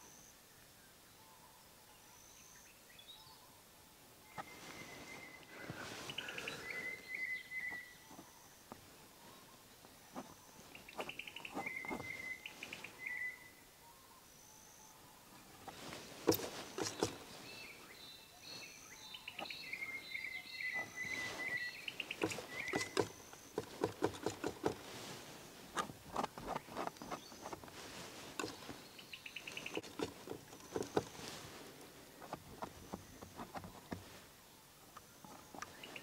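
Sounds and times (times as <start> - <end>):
birds chirping: 0.0 - 36.0
palette knife tapping and scraping: 22.2 - 24.8.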